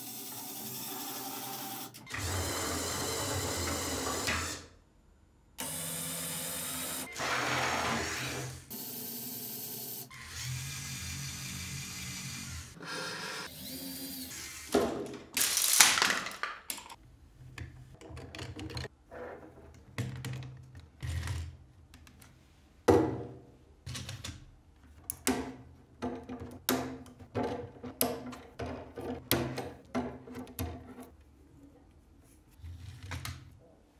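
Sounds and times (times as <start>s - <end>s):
small electric motors whirring: 5.6s - 14.7s
plastic bricks clicking and clattering: 15.4s - 17.0s.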